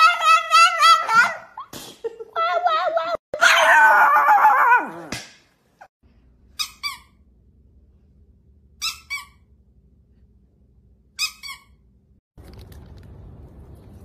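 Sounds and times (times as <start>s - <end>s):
squeaky dog toy squeaks: 6.5s - 7.2s, 8.8s - 9.5s, 11.2s - 11.9s.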